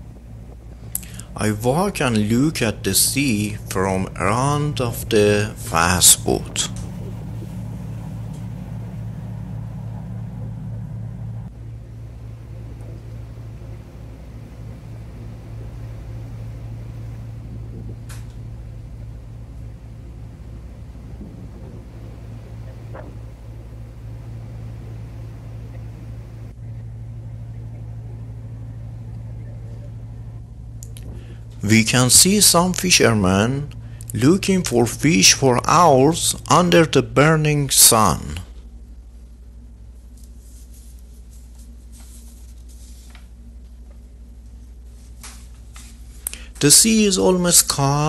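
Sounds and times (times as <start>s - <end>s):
rushing wake water: 0.0s - 26.6s
boat engines droning: 0.0s - 48.0s.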